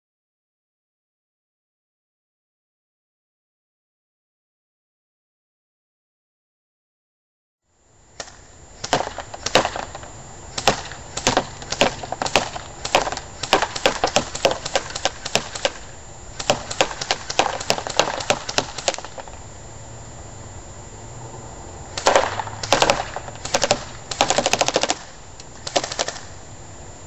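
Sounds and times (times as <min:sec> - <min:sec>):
airsoft rifle shots: 0:08.2 - 0:19.4, 0:21.9 - 0:26.4.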